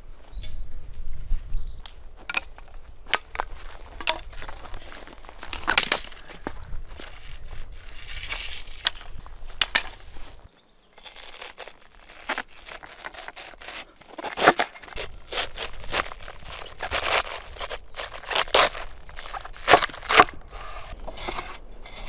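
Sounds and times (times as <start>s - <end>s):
snaps and rustles: 1.8s - 21.5s
cleaver slicing cabbage: 11.0s - 22.0s.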